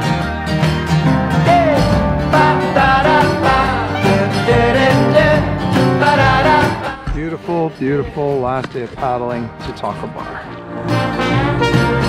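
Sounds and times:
country song with singing and guitar: 0:00.0 - 0:09.8.

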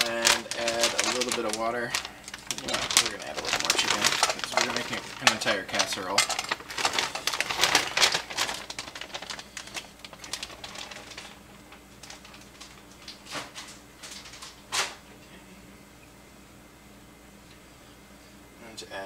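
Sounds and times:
chicken cubes rattling into pan: 0:00.0 - 0:11.4.

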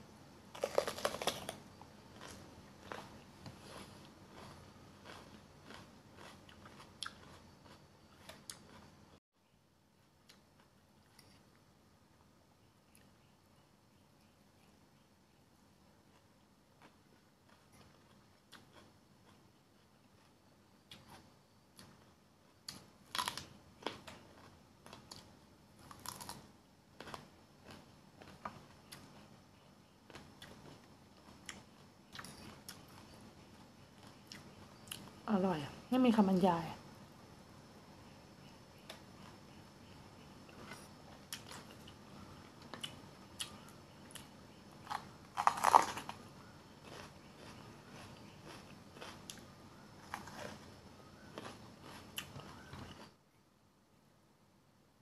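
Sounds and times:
crunchy chewing of raw pepper: 0:00.5 - 0:09.2, 0:16.0 - 0:35.1, 0:38.8 - 0:53.1
crisp crunch of biting pepper: 0:00.6 - 0:01.6, 0:44.9 - 0:46.2, 0:46.8 - 0:49.4, 0:50.0 - 0:53.0.

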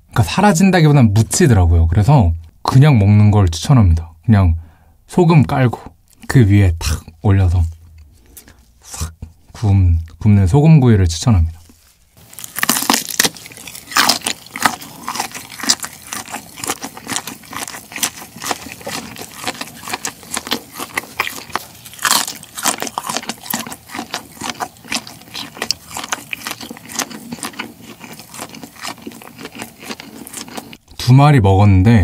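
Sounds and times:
biting and chewing: 0:11.6 - 0:31.0
shell crackling: 0:12.2 - 0:30.8.

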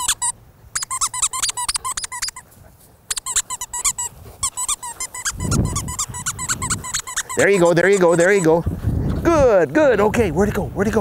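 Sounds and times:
rubber squeaky toy squeaks: 0:00.0 - 0:02.5, 0:03.1 - 0:08.6.

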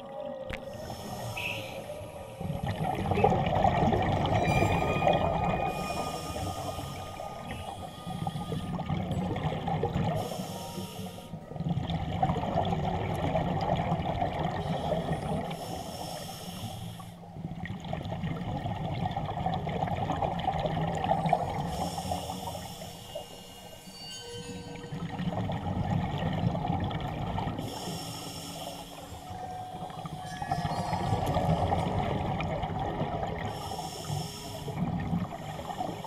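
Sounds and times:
regulator breath hiss: 0:00.7 - 0:02.5, 0:05.7 - 0:08.8, 0:10.2 - 0:11.4, 0:14.7 - 0:17.2, 0:21.7 - 0:23.9, 0:27.6 - 0:30.2, 0:33.5 - 0:34.8
gurgling exhaled bubbles: 0:02.4 - 0:07.8, 0:11.6 - 0:15.5, 0:17.4 - 0:21.7, 0:29.8 - 0:33.7.

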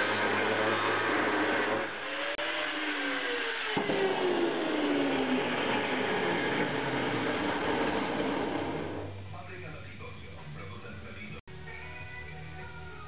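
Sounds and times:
electric grinder winding down: 0:00.0 - 0:09.1.

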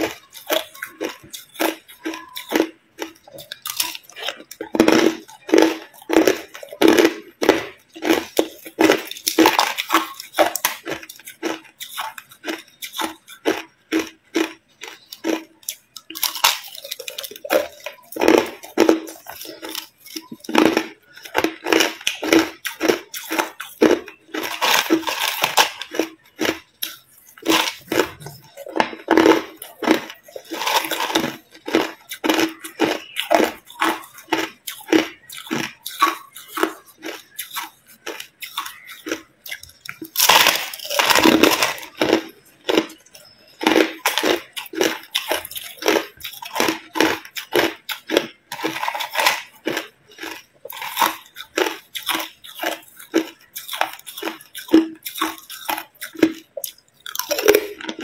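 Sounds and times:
person chewing crushed ice: 0:00.0 - 0:58.0.

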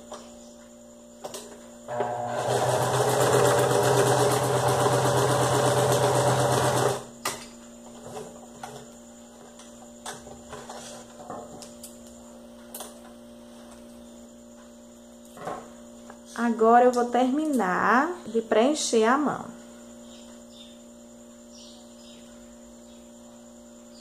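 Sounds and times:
sewing machine stitching: 0:01.9 - 0:07.0.

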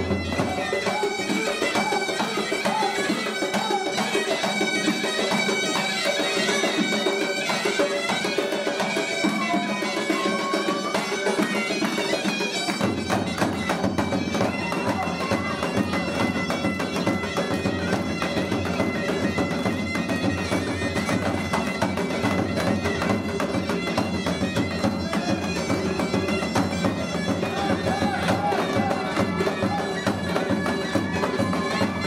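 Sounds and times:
drum beat: 0:00.0 - 0:32.0
shrill reed wind instrument: 0:00.0 - 0:32.0.

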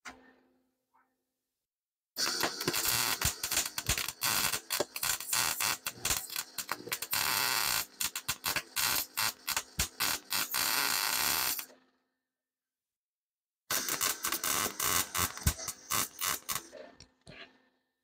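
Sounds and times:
welding arc crackling: 0:02.2 - 0:11.7, 0:13.7 - 0:16.7.

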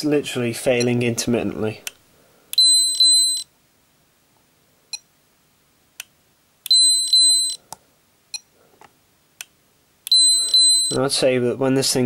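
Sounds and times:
meter high double beep: 0:10.1 - 0:11.0.

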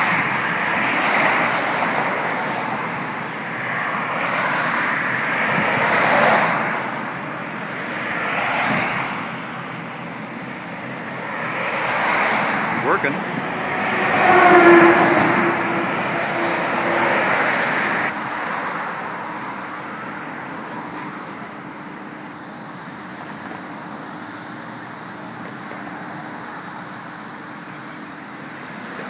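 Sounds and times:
car passing close: 0:00.0 - 0:19.7
highway road noise: 0:00.0 - 0:29.0.

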